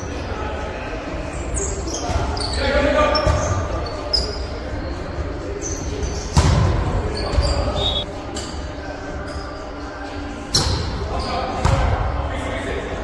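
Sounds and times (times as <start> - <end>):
players' voices: 0.0 - 13.0
sneaker squeaks on wooden floor: 1.3 - 4.9, 5.5 - 8.1.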